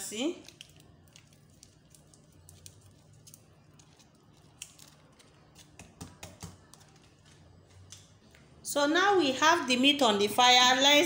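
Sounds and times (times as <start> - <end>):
seasoning packet crinkling: 0.4 - 5.8.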